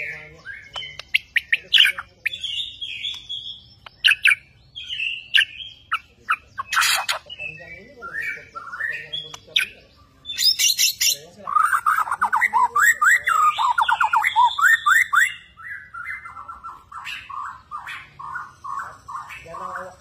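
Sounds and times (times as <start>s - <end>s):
bird singing whistled notes: 0.0s - 20.0s
harsh scratchy bird call: 1.1s - 7.4s.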